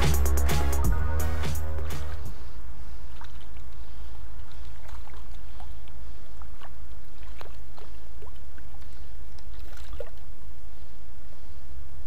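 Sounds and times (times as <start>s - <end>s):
low steady rumble: 0.0s - 4.4s
fish splashing in water: 3.1s - 10.4s.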